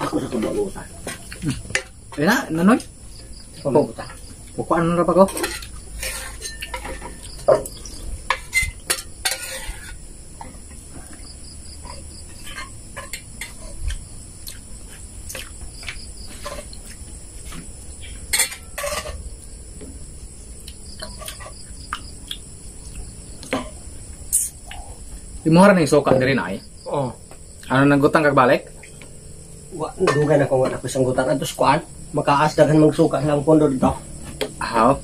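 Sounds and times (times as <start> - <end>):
insects droning: 0.0 - 35.0
cutlery clinking on plates: 5.2 - 10.0, 18.3 - 19.2.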